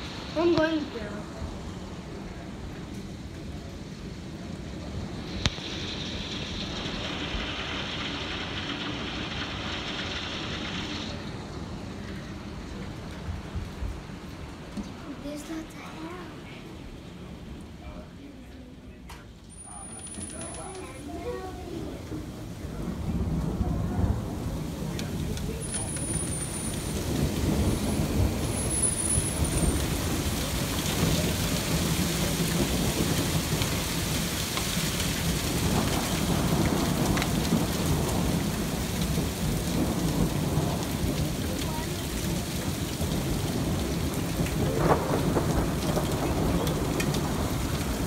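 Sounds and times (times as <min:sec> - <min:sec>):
hailstones striking the ground: 0:00.0 - 0:17.7, 0:18.3 - 0:48.0.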